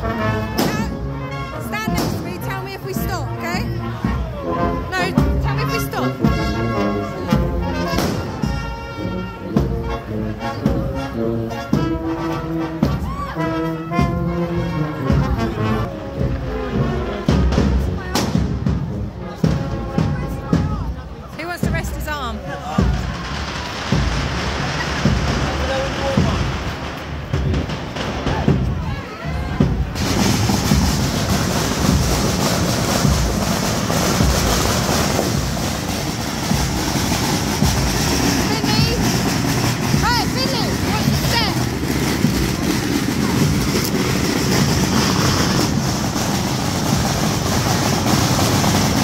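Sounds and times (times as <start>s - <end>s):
crowd hubbub: 0.0s - 49.0s
marching brass band playing: 0.0s - 49.0s
loud drum thumps: 22.8s - 49.0s.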